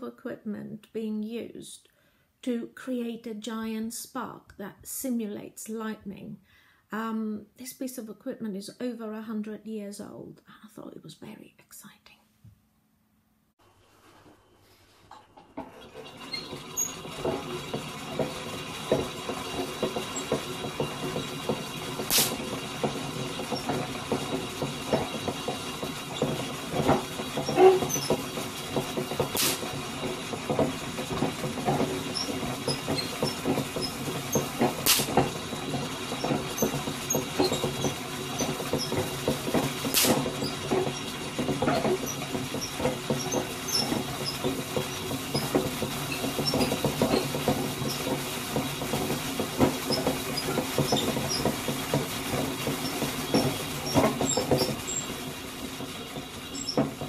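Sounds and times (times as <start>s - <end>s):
hand-cranked machine rattling: 15.1s - 57.0s
sharp spark cracks: 22.1s - 22.4s, 29.4s - 29.6s, 34.8s - 35.1s.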